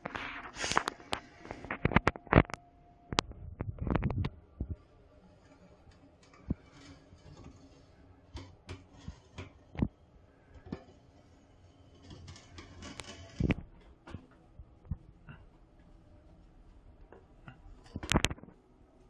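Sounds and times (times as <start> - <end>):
faint rubbing: 4.8 - 13.8.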